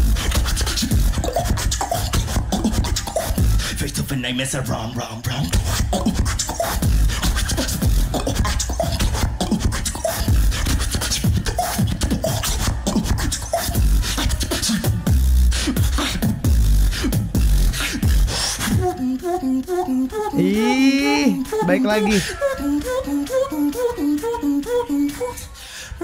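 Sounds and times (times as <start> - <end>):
beatboxing: 0.0 - 26.0
held pitched vocal notes: 5.4 - 26.0.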